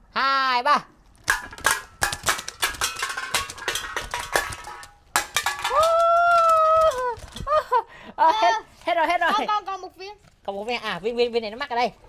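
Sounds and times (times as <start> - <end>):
metallic clinks of cans: 1.2 - 7.5.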